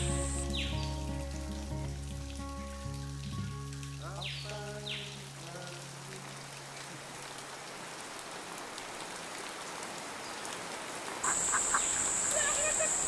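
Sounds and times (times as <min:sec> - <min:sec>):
rain falling on foliage: 0:00.0 - 0:13.0
chickens clucking: 0:11.2 - 0:13.0
ducks quacking: 0:11.2 - 0:13.0.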